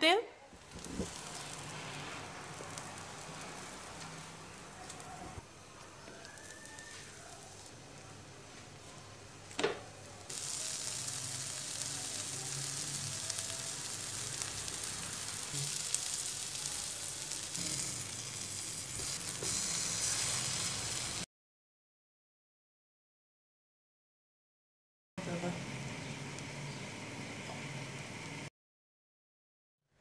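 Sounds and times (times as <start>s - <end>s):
butter sizzling in a frying pan: 0.6s - 4.8s, 6.1s - 7.7s, 10.2s - 21.3s.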